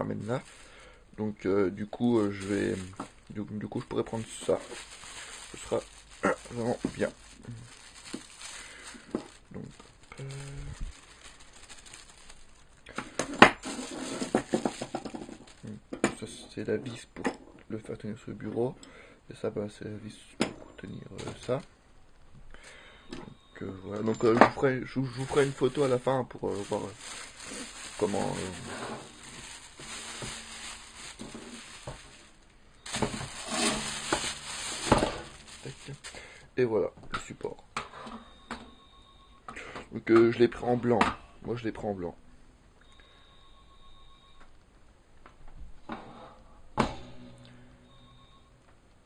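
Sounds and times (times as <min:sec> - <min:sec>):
handling knocks and rustling: 0:01.9 - 0:17.4, 0:24.0 - 0:36.2.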